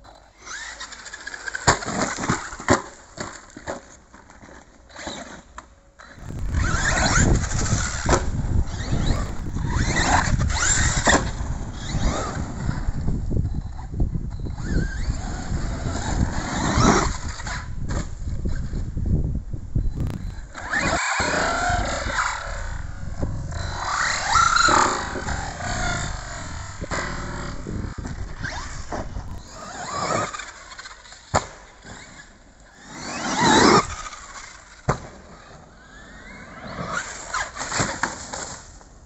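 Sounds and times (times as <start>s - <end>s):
tyres scrabbling on dirt: 0.5s - 13.1s, 20.0s - 31.0s
electric motor whining: 6.0s - 18.9s, 20.0s - 31.0s.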